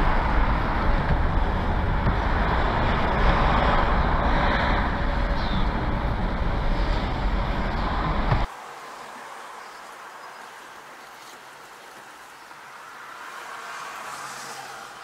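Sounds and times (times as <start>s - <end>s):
truck engine: 0.0s - 8.6s
road noise: 0.0s - 15.0s.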